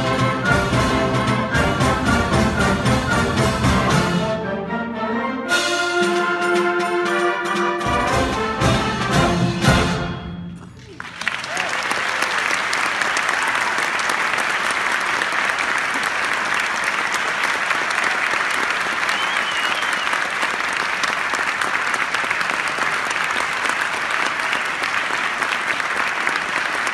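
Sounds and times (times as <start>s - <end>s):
audience applauding: 10.6s - 26.9s.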